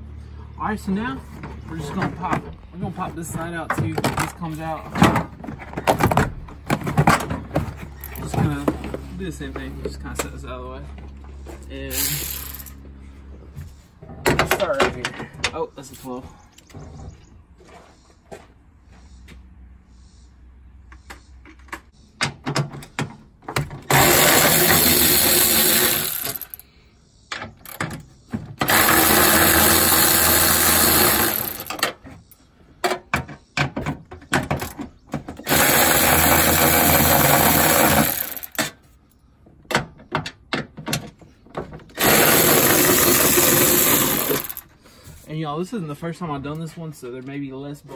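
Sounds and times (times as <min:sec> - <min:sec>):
electric ratchet running: 0:11.9 - 0:12.8, 0:23.9 - 0:26.6, 0:28.6 - 0:31.8, 0:35.4 - 0:38.6, 0:42.0 - 0:44.7.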